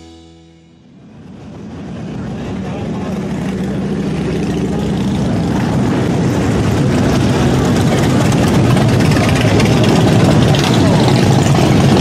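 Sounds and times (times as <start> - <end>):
motorcycle engines rumbling: 0.0 - 12.0.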